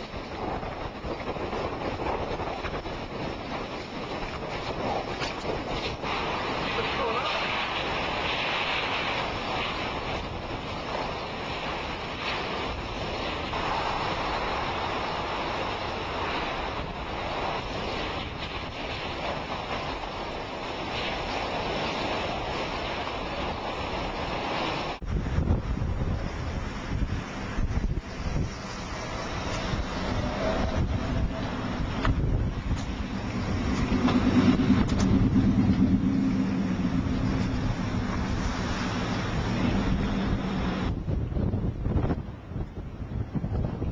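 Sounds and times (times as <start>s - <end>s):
driving rain: 0.0s - 43.9s
hurricane wind: 0.0s - 43.9s
wind buffeting microphone: 0.0s - 43.9s
car engine and road hum: 26.5s - 43.0s.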